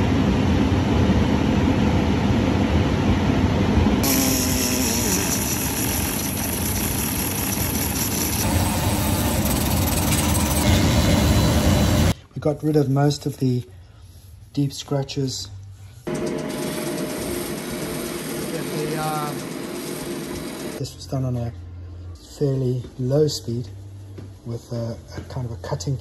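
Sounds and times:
pneumatic die grinder grinding metal: 0:04.0 - 0:12.2, 0:16.1 - 0:20.8.

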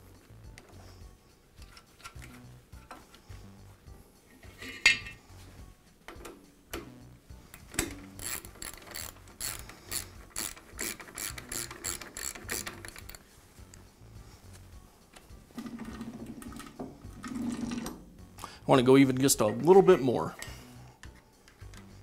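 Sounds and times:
spring housing clicking: 0:07.5 - 0:13.2.

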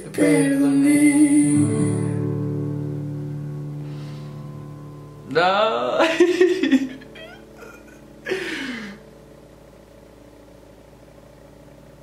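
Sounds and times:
faint room hum: 0:00.0 - 0:12.0
man sighing: 0:07.6 - 0:09.0.

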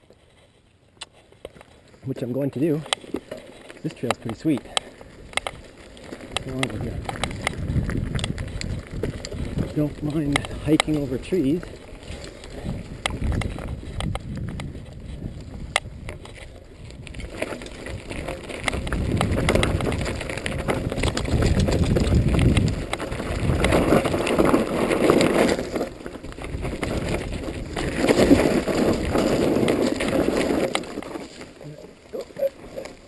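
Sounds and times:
bike rattling and clicking: 0:00.0 - 0:33.0
bike tyres rolling over dirt: 0:00.0 - 0:33.0
wind on microphone: 0:06.4 - 0:11.0, 0:11.6 - 0:30.4.

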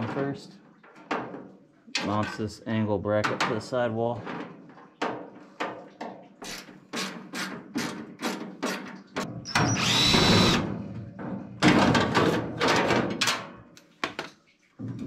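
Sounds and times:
cordless drill motor whining: 0:09.5 - 0:10.6.

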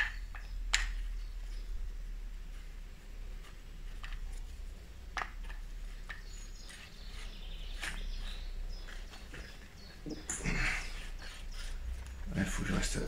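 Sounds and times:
low steady background hum: 0:00.0 - 0:13.0
faint bird chirps: 0:05.8 - 0:13.0.

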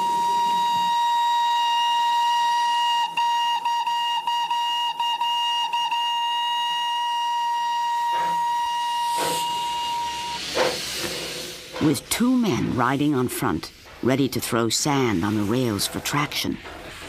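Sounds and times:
steam locomotive whistle: 0:00.0 - 0:10.7.

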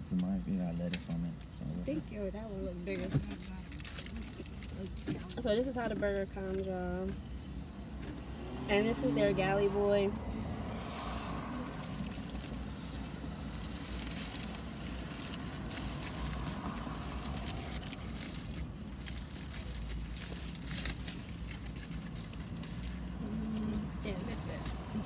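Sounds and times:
low hum inside a car: 0:00.0 - 0:07.5
food wrappers crinkling: 0:03.0 - 0:06.7, 0:11.0 - 0:25.0.

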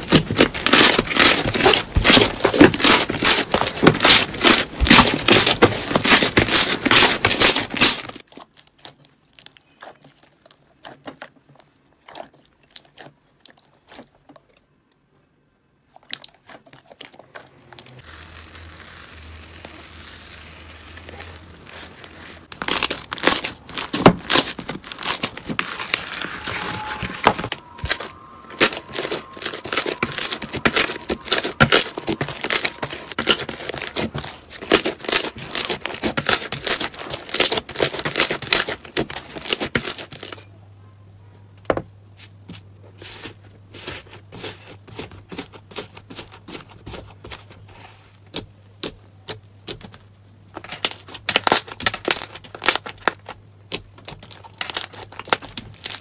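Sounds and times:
hands squishing slime: 0:00.0 - 0:14.8, 0:15.8 - 0:26.9, 0:27.6 - 0:40.4, 0:50.6 - 0:56.0
low hum: 0:25.3 - 0:32.2.

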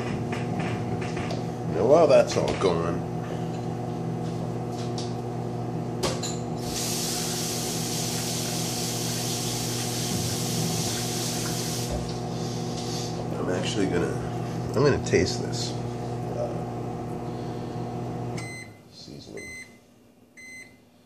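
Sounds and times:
tap water running into sink: 0:06.7 - 0:12.2.

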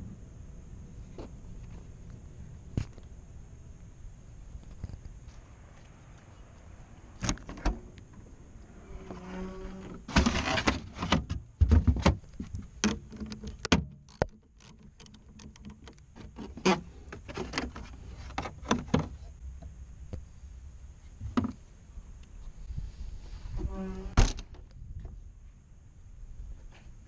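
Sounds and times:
rustling and knocks: 0:10.1 - 0:19.3.

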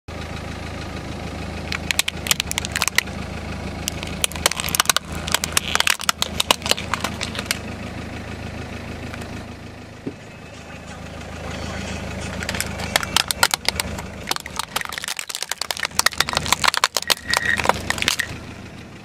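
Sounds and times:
car engine idling: 0:00.1 - 0:19.0
plastic toys cracking under tyre: 0:01.7 - 0:03.2, 0:03.8 - 0:07.6, 0:12.4 - 0:18.4.

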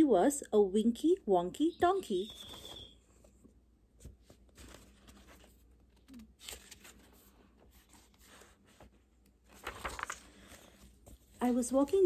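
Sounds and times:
paper pages rustling: 0:02.3 - 0:03.4, 0:04.0 - 0:12.0.

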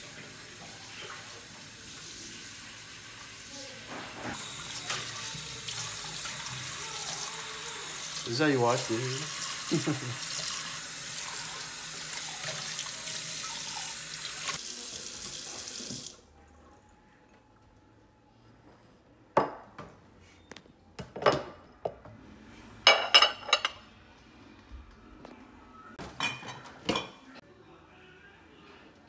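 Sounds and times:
ceramic plates clinking: 0:22.9 - 0:23.8.

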